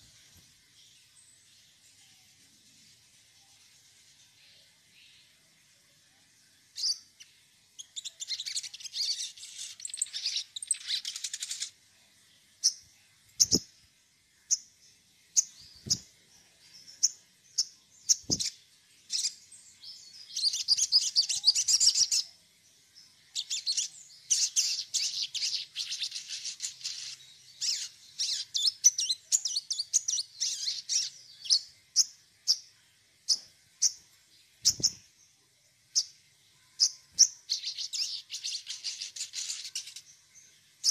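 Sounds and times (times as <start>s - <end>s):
bird singing fast trills: 6.7s - 11.8s, 13.4s - 13.7s, 16.7s - 22.4s, 23.0s - 32.7s, 35.9s - 40.9s.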